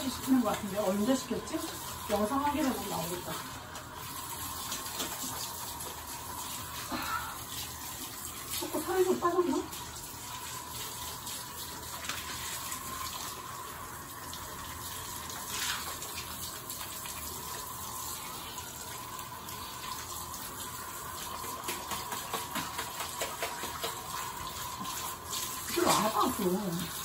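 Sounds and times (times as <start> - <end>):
shower spraying water: 0.0 - 27.0
water splashing: 19.7 - 27.0.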